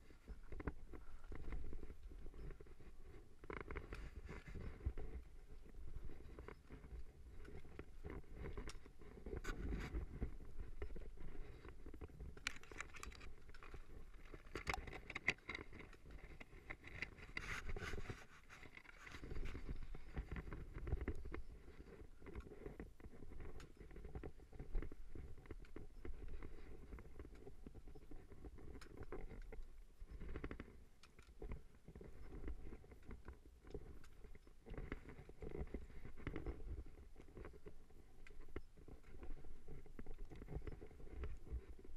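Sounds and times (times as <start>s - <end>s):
wind rumble on microphone: 0.0s - 30.8s
clothing scraping on rock: 5.9s - 21.0s.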